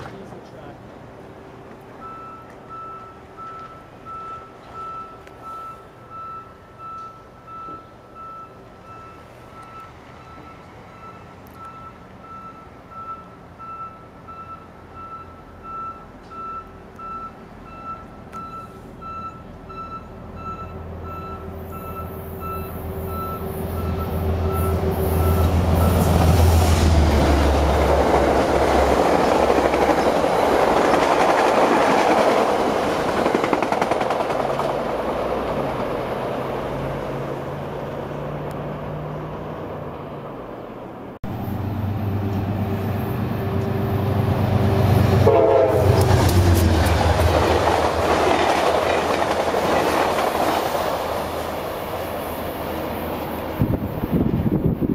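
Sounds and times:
train wheels rushing on rail: 21.0 - 39.0, 41.2 - 54.9.

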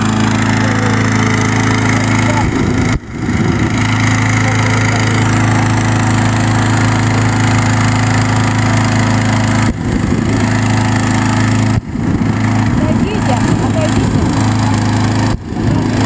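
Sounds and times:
balloon inflator fan engine hum: 0.0 - 16.0.

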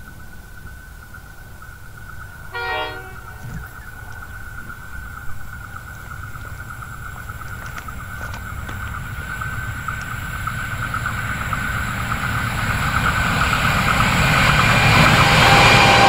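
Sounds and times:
train rumble: 0.0 - 16.0
locomotive horn blast: 2.5 - 3.8, 15.1 - 16.0.

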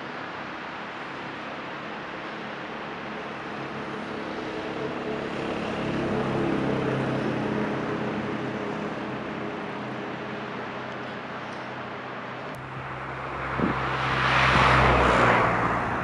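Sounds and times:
steady rushing background: 12.2 - 16.0
vehicle engine passing by: 12.5 - 16.0.

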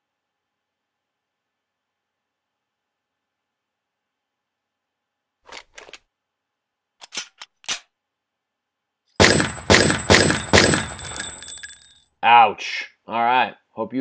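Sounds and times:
handgun shots: 9.2 - 11.8
shell casings clinking on concrete: 9.2 - 12.0.

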